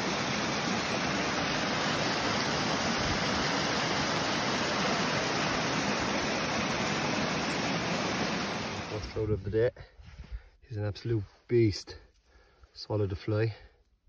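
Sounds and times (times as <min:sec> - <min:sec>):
waterfall rushing over rocks: 0:00.0 - 0:09.2.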